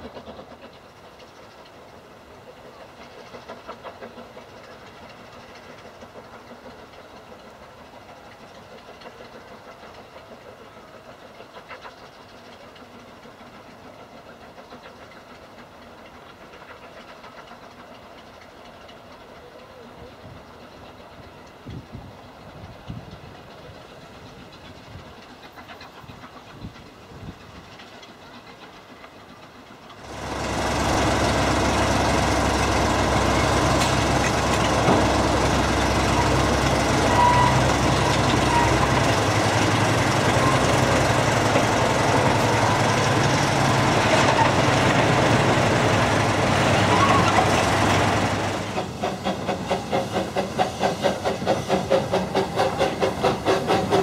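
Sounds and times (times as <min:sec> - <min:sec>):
steam locomotive exhaust beats: 0:00.0 - 0:54.0
large engine running: 0:29.9 - 0:54.0.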